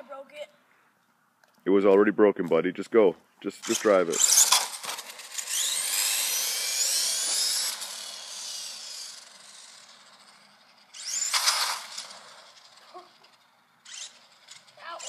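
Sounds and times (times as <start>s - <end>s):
electric motor whining: 3.6s - 15.0s.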